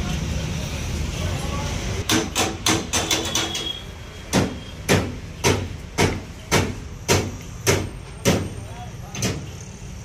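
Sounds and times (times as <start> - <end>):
sharp knocks: 2.1 - 3.6, 4.3 - 8.5.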